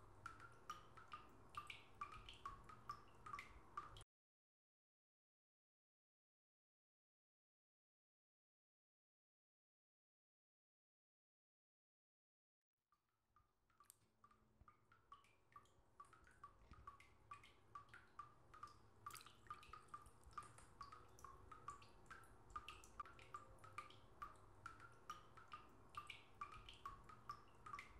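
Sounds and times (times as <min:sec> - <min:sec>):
water drips plinking: 0:00.0 - 0:04.0, 0:13.7 - 0:27.9.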